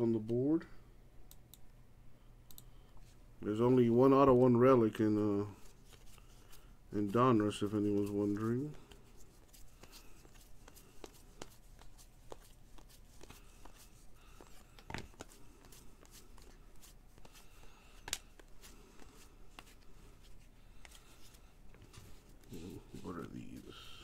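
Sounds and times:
trading cards rustling: 0:05.5 - 0:24.0.

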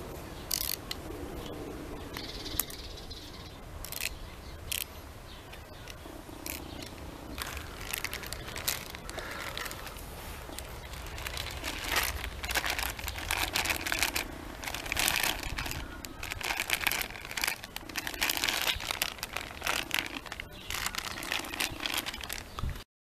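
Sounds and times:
plastic sleeve crinkling: 0:05.9 - 0:22.8.

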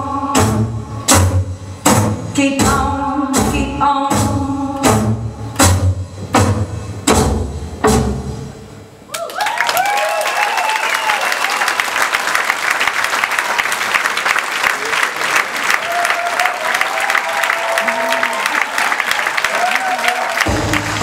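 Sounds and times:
person singing: 0:00.0 - 0:00.8, 0:02.3 - 0:05.2
stage music with heavy beat: 0:00.0 - 0:08.8, 0:20.3 - 0:21.0
audience applause and cheering: 0:09.0 - 0:21.0.

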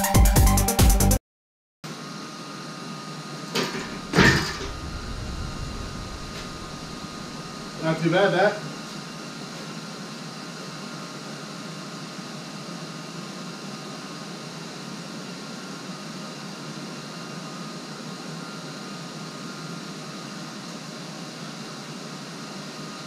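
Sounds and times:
machine hum and hiss: 0:01.9 - 0:23.0
faint high whine: 0:03.6 - 0:08.7.

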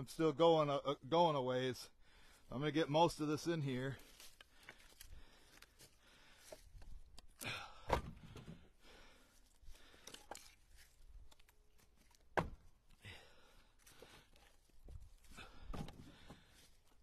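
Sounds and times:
firewood knocking together: 0:12.2 - 0:12.7.

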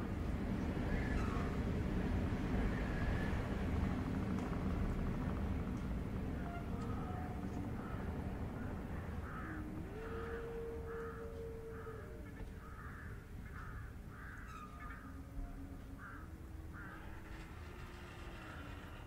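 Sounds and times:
low sliding sustained tone: 0:00.0 - 0:19.0.

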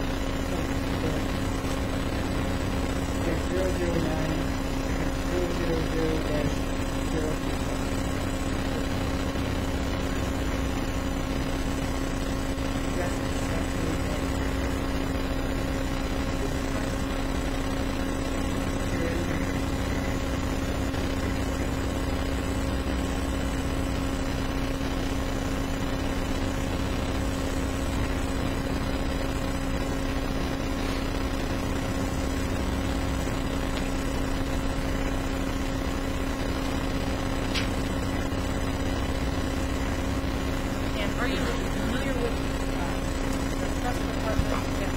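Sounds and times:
electrical hum: 0:00.0 - 0:44.9.

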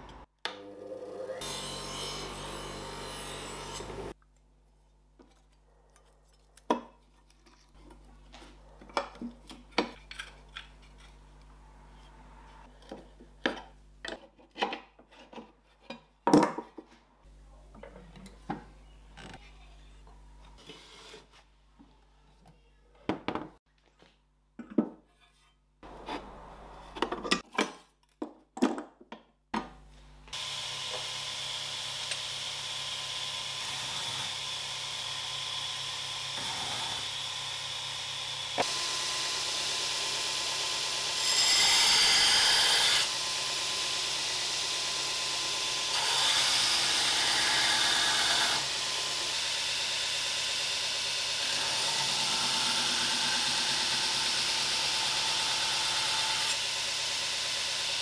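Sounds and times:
belt grinder running: 0:00.6 - 0:04.2, 0:30.3 - 0:58.0.

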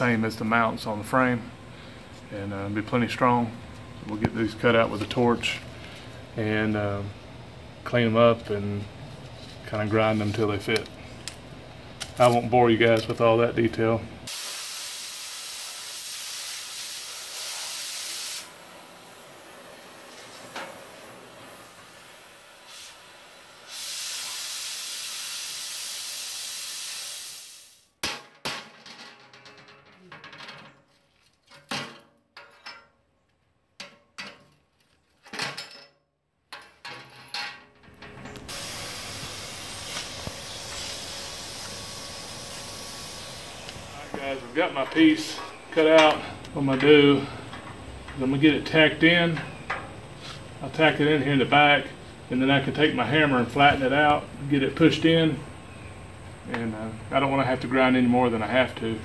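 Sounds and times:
cutting torch hissing: 0:14.3 - 0:27.9, 0:38.4 - 0:46.4.

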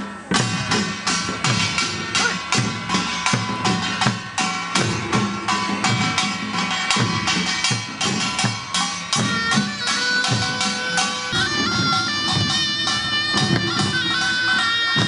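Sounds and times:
percussion band drumming: 0:00.0 - 0:15.0
sustained ringing tones: 0:11.0 - 0:15.0.

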